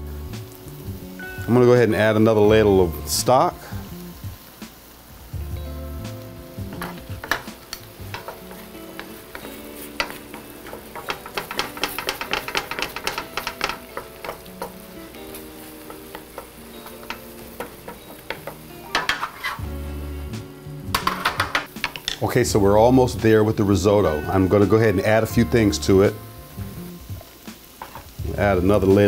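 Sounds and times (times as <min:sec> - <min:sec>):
stock sizzling: 0:00.0 - 0:29.0
wooden spatula scraping metal pan: 0:06.7 - 0:19.8.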